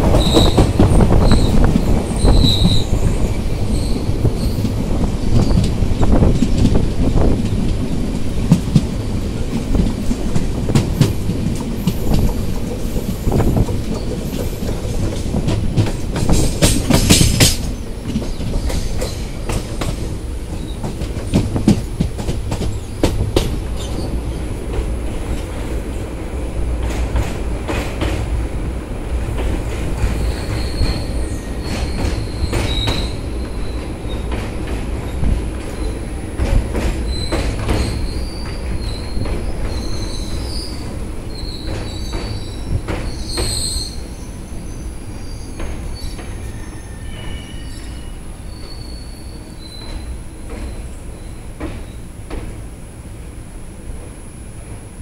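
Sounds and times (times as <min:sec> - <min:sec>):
train wheels rumbling on rails: 0:00.0 - 0:55.0
high wheel squeals: 0:00.2 - 0:04.7, 0:30.2 - 0:34.3, 0:37.1 - 0:51.4.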